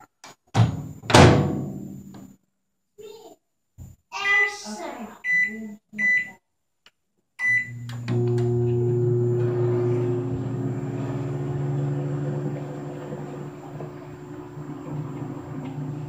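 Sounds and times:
microwave keypad beep: 0:05.3 - 0:06.4, 0:07.4 - 0:07.9
microwave oven humming: 0:07.4 - 0:16.0.

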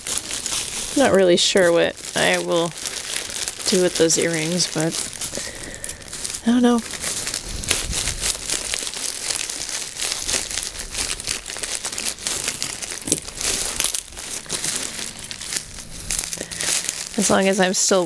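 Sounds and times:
plastic packaging crinkling: 0:00.0 - 0:18.0
scissors cutting plastic: 0:09.3 - 0:17.8.

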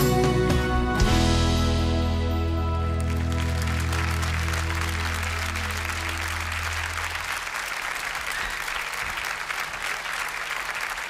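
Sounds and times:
band's held low chord: 0:00.0 - 0:07.1
audience applauding: 0:02.9 - 0:11.0.

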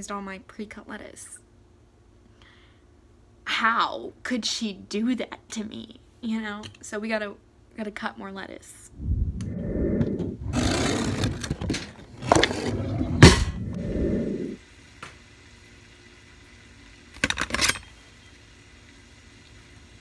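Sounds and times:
camera handling rumble and scraping: 0:10.2 - 0:13.5.

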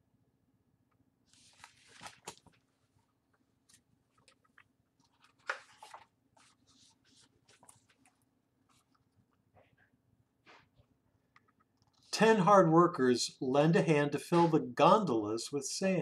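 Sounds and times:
book pages rustling: 0:01.3 - 0:09.3.

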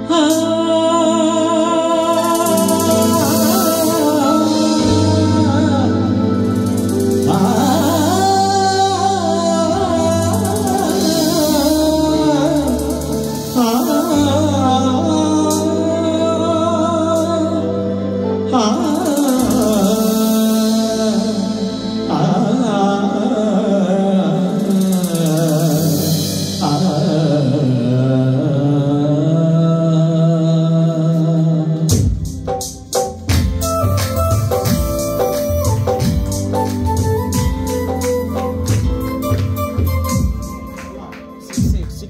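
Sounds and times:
man singing into a microphone: 0:00.0 - 0:33.1
low keyboard chords: 0:00.0 - 0:42.0.

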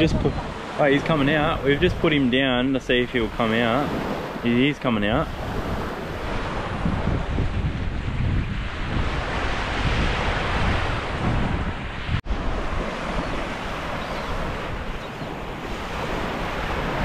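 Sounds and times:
small waves lapping on sand: 0:00.0 - 0:07.3, 0:12.2 - 0:17.0
wind buffeting microphone: 0:00.0 - 0:17.0.

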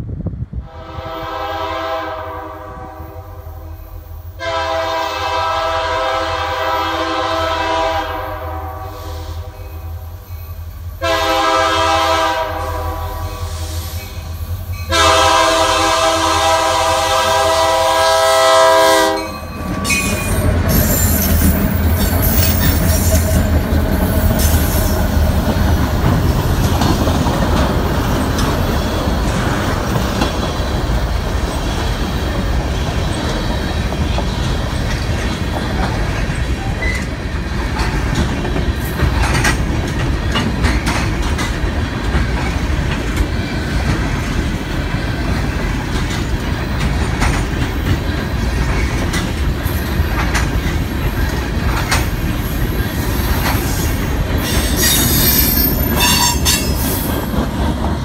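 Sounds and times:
locomotive horn: 0:00.6 - 0:03.8, 0:04.4 - 0:10.1, 0:11.0 - 0:14.0, 0:14.8 - 0:21.3, 0:54.4 - 0:56.8
locomotive engine rumble: 0:14.2 - 0:54.5
clickety-clack over rail joints: 0:19.1 - 0:58.0
wheels rolling on rails: 0:19.4 - 0:58.0.

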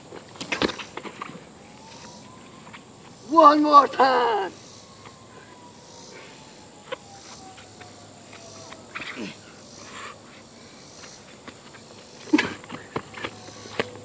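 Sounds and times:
faint outdoor background: 0:00.0 - 0:14.0
boy yelling: 0:03.3 - 0:04.6.

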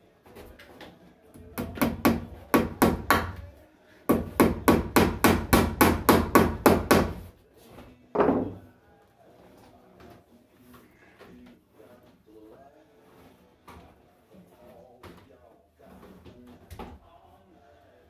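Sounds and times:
hammer striking wood: 0:01.6 - 0:03.4, 0:04.1 - 0:07.3.

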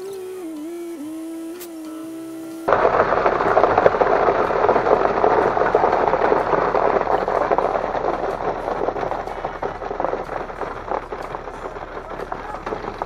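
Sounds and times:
wet concrete pouring down chute: 0:02.7 - 0:13.0.

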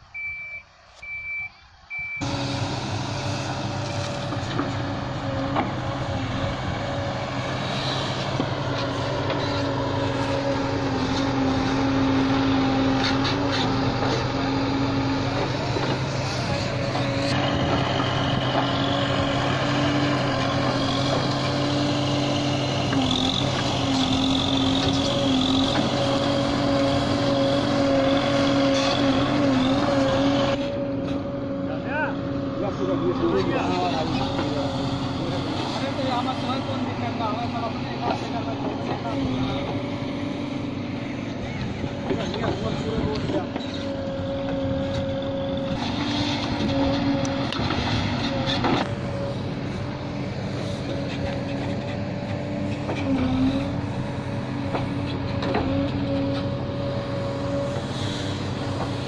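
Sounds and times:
diesel engine under load: 0:00.0 - 0:59.0
reversing alarm beeping: 0:00.1 - 0:02.3.

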